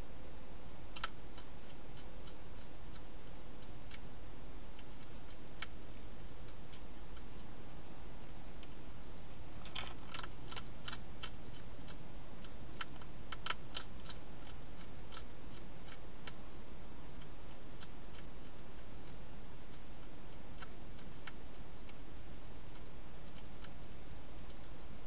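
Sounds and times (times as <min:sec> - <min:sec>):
hedgehog crunching dry food: 0:00.9 - 0:24.9.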